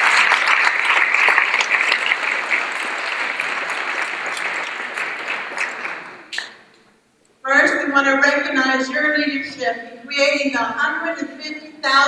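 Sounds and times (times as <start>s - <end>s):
audience clapping: 0.0s - 6.6s.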